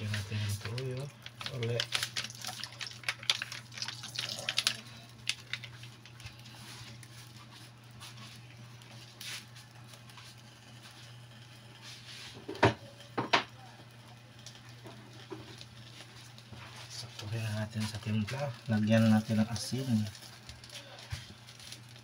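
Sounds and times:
broth bubbling and popping: 0.0s - 7.1s
low steady hum: 0.0s - 22.0s.

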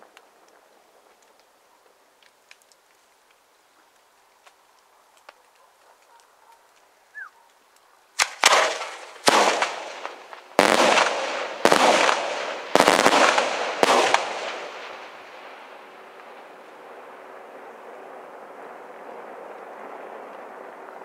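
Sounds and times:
firework shells bursting: 8.2s - 16.5s.

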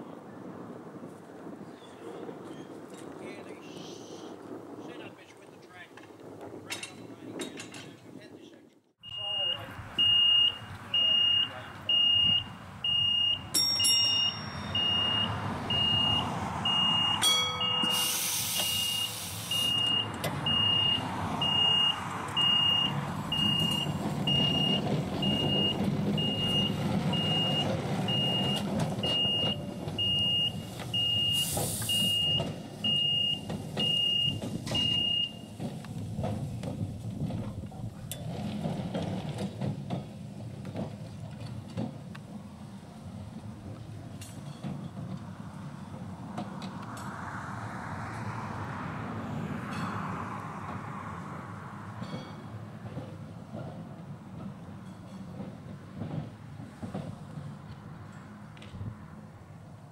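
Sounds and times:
level crossing bell beeping: 9.0s - 35.5s
tram rumbling: 9.0s - 59.9s
air hisses: 17.8s - 19.9s, 31.3s - 32.2s.

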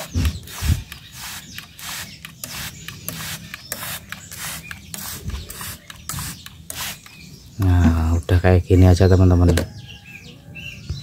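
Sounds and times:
spray bottle hissing: 0.0s - 7.2s.

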